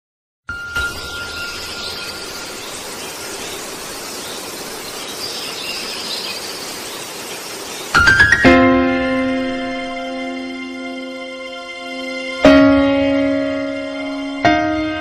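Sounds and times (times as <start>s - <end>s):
steady hiss with high tones: 0.5s - 8.4s.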